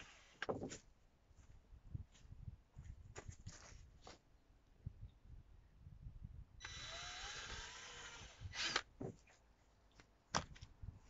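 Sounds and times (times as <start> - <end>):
cordless drill drilling plastic: 6.6 - 8.9.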